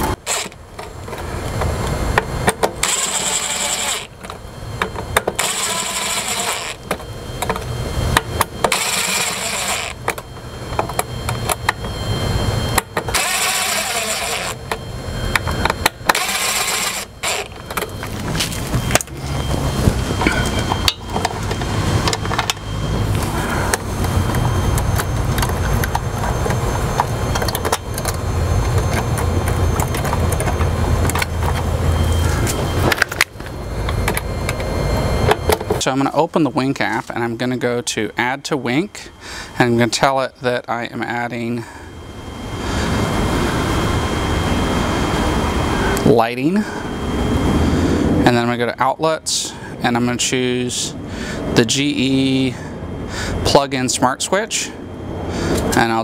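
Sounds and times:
cordless drill driving screws: 0.0s - 0.6s, 2.8s - 4.2s, 5.3s - 6.9s, 8.7s - 10.0s, 13.1s - 14.6s, 16.1s - 17.6s
steady low rumble: 0.0s - 3.1s, 4.1s - 56.0s.

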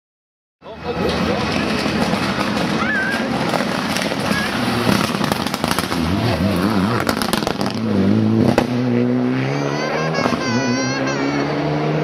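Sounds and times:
rally car accelerating: 0.7s - 12.0s
exhaust crackling and popping: 0.8s - 8.7s.

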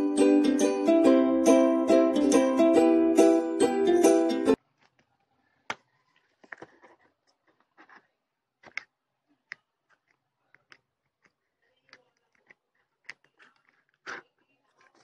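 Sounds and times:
ukulele music: 0.0s - 4.6s.

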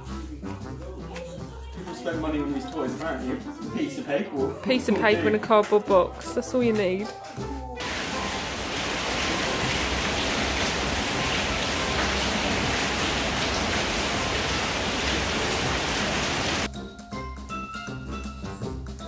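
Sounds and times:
heavy rain pouring: 7.8s - 16.7s.

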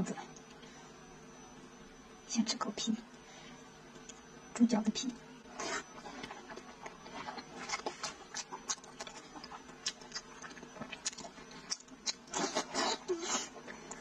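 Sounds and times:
chewing and lip-smacking: 6.2s - 14.0s.

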